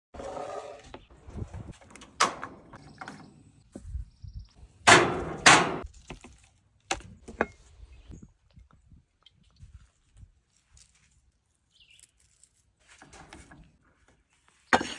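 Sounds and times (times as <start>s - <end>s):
knocks and scrapes: 0.2s - 4.0s, 12.0s - 14.9s.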